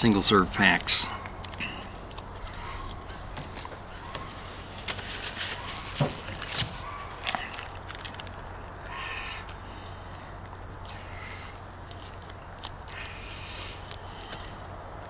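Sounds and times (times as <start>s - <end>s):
plastic packet crinkling and tearing: 4.7s - 8.4s.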